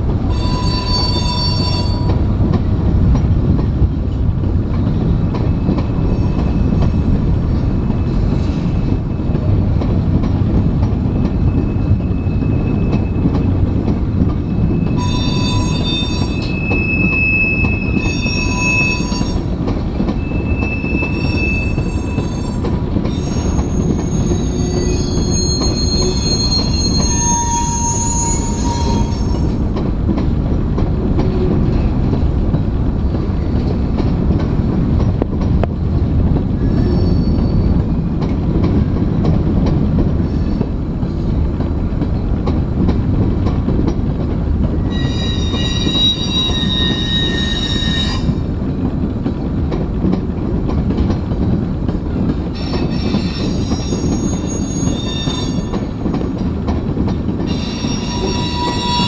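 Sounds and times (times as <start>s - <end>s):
train wheels rumbling on rail: 0.0s - 59.0s
high-pitched wheel squeal: 0.3s - 2.2s, 14.5s - 19.5s, 20.2s - 29.5s, 36.7s - 37.7s, 44.9s - 48.4s, 52.6s - 55.9s, 57.5s - 59.0s.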